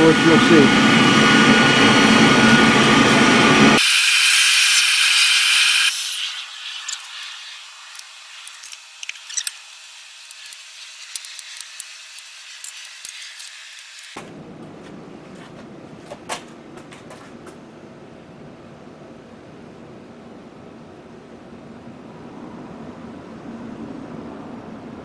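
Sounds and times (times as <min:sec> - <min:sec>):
furnace burner roaring: 0:00.0 - 0:25.0
hiss: 0:03.8 - 0:08.6.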